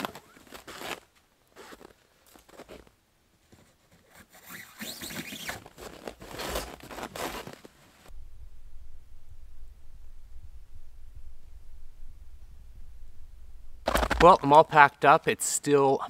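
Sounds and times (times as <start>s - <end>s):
cord rasping across canvas: 0.0s - 2.9s, 3.5s - 8.1s
canvas rustling: 0.0s - 8.2s.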